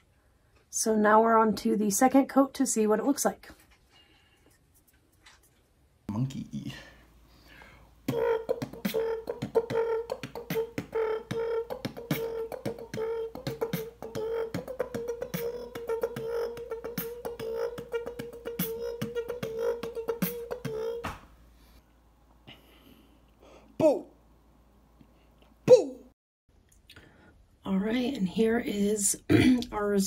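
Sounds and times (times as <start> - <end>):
beatboxing hummed note: 8.0 - 21.2
beatboxing mouth clicks and pops: 8.1 - 21.2.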